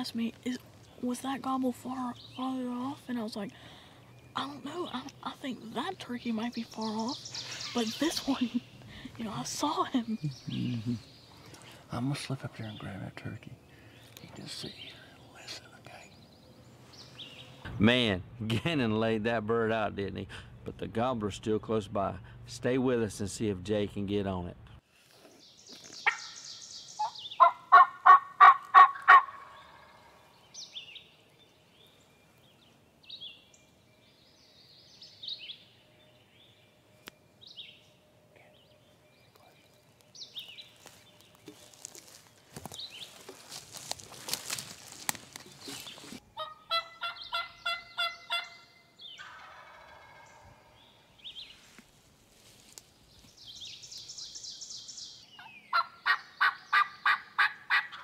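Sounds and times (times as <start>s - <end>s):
turkey gobbling: 26.0s - 26.4s, 27.0s - 30.2s, 46.3s - 50.8s, 55.4s - 58.0s.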